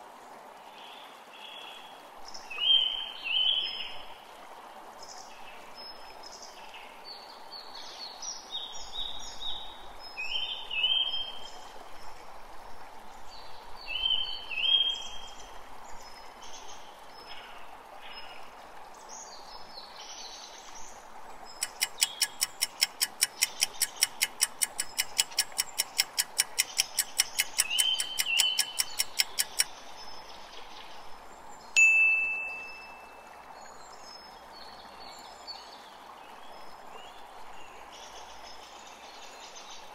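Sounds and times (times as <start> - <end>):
soft steady hiss: 0.0 - 39.9
birdsong: 21.5 - 35.8
countdown clock ticking: 21.6 - 29.6
bright chime: 31.8 - 33.2.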